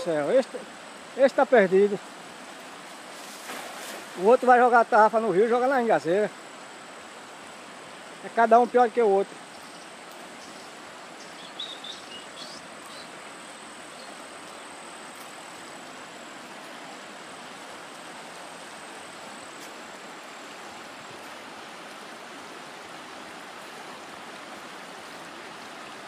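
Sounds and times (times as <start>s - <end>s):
river water rushing over rapids: 0.0s - 26.0s.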